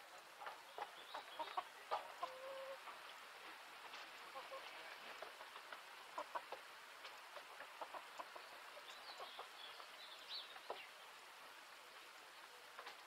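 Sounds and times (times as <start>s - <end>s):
hens clucking faintly: 0.0s - 13.0s
bird chirps: 0.6s - 1.7s.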